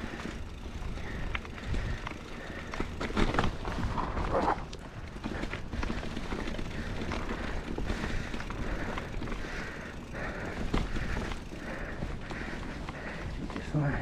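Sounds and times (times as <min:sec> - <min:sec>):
bike frame rattling and clicking: 0:00.0 - 0:14.0
bike tyres crunching over stones: 0:00.0 - 0:14.0
wind buffeting microphone: 0:00.4 - 0:02.3.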